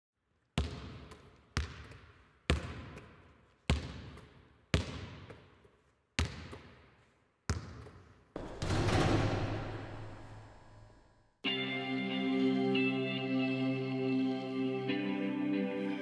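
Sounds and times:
ball bouncing on hard floor: 6.2 - 6.9, 7.5 - 9.6.

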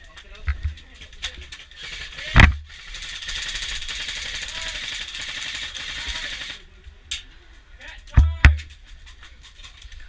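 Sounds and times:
airsoft gun full-auto burst: 1.7 - 6.6.

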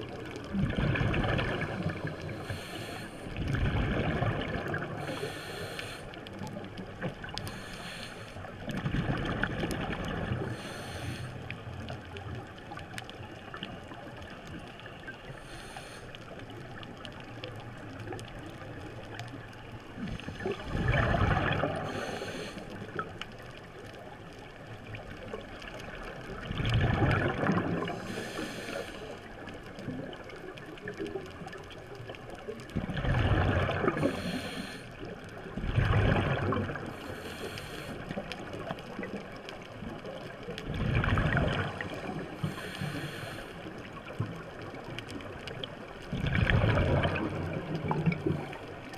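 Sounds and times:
exhaled bubbles rushing: 0.0 - 2.4, 3.4 - 5.1, 8.6 - 10.5, 20.0 - 22.1, 26.2 - 28.2, 32.7 - 34.3, 35.5 - 37.0, 40.3 - 42.6, 44.3 - 48.6
underwater hiss: 0.7 - 6.5, 7.2 - 8.6, 9.2 - 11.7, 14.8 - 16.7, 20.0 - 23.2, 27.2 - 29.4, 33.2 - 39.1, 41.0 - 44.2.

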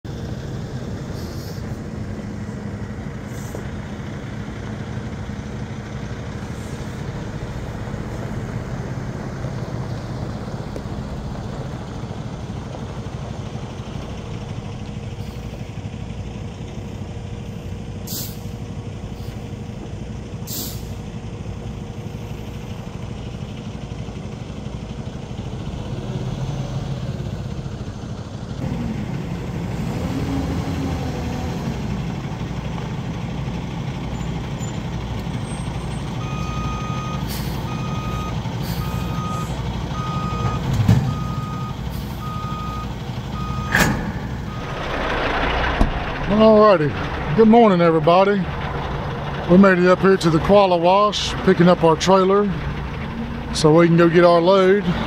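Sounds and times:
truck diesel engine running: 0.0 - 55.0
short hisses: 1.1 - 1.8
reversing alarm beeping: 36.2 - 45.4.

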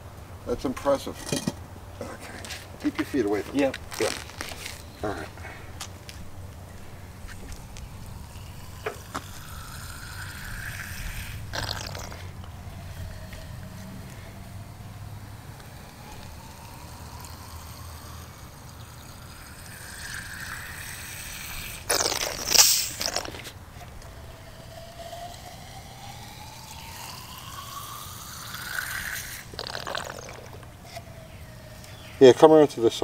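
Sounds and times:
liquid trickling into a port: 7.5 - 32.0.

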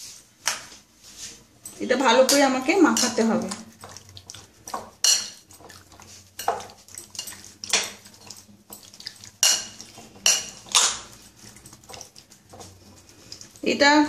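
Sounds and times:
metal spoon scraping glass bowl: 1.7 - 3.9.

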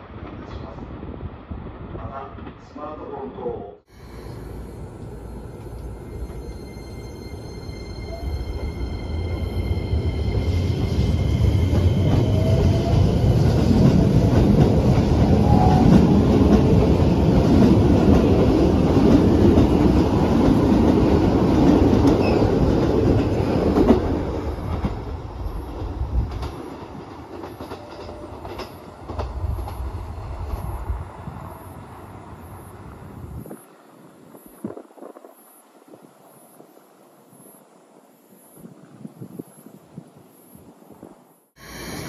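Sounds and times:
train wheels rumbling over rail joints: 9.8 - 31.5.

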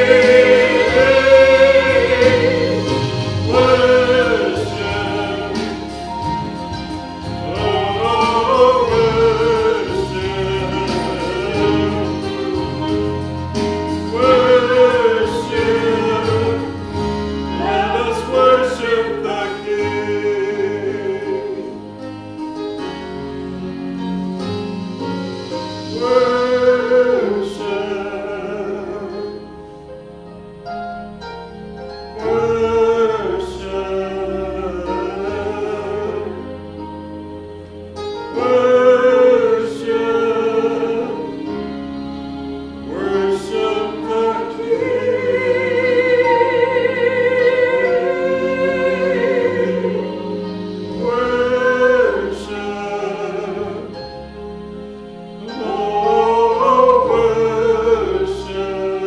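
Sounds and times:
woman and man singing duet: 0.0 - 6.0, 7.4 - 13.1, 14.0 - 21.8, 42.9 - 54.0, 55.4 - 59.0
sustained instrumental accompaniment: 0.0 - 59.0.

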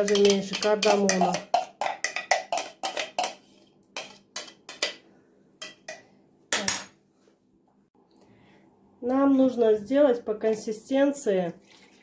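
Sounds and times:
utensil scraping and tapping bowl: 0.0 - 5.0, 5.6 - 6.7.

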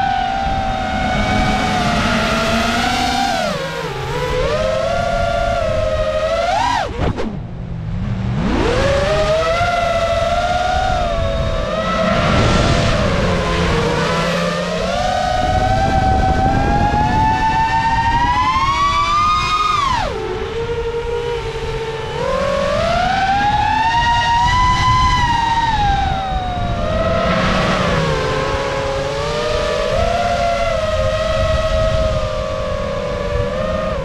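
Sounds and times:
drone motors whining: 0.0 - 34.0
wind noise: 0.0 - 34.0.

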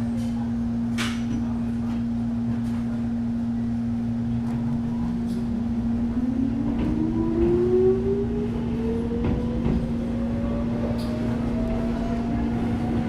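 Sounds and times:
steady train hum: 0.0 - 13.0.

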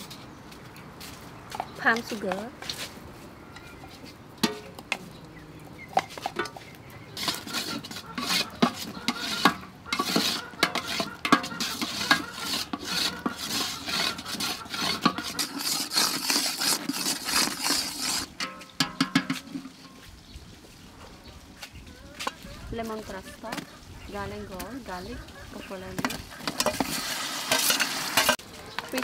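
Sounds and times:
syrup bubbling and sizzling: 3.7 - 19.0, 26.0 - 28.5
metal spatula scraping a pot: 5.9 - 20.1, 24.4 - 29.0.

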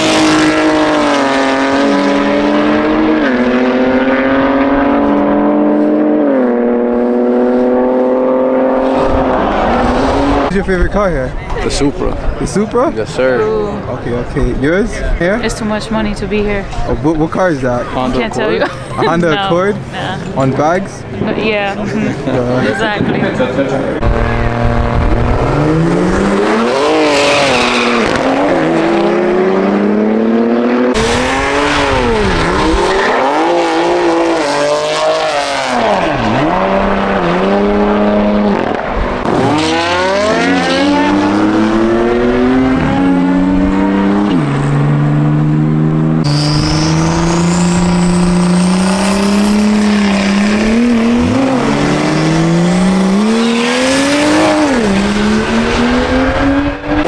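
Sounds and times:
drag race car engines revving: 0.0 - 10.8, 23.2 - 57.0
high-pitched whine: 46.2 - 53.3.

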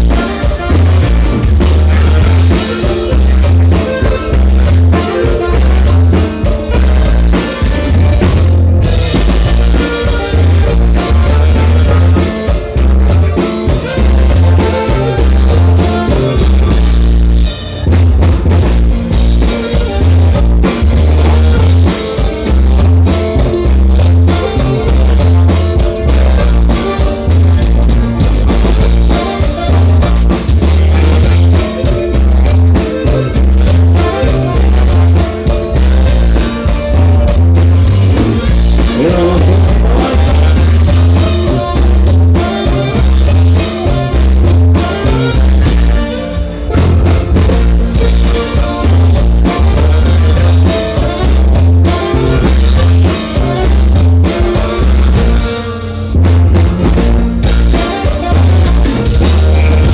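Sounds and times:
dance band music: 0.0 - 59.9.

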